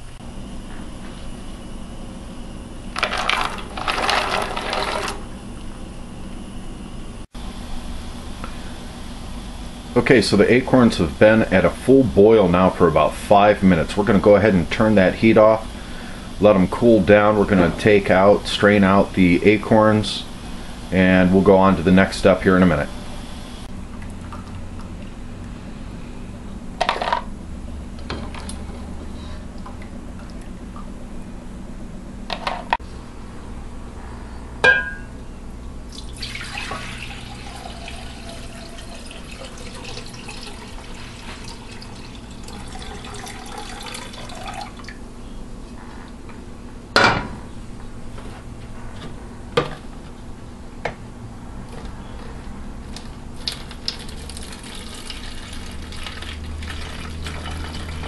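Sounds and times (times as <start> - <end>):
liquid pouring into glass cup: 35.9 - 45.0, 53.4 - 58.0.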